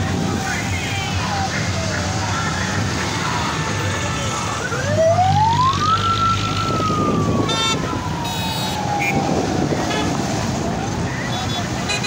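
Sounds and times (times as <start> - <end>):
traffic hum: 0.0 - 12.0
vehicle siren winding down: 4.5 - 9.8.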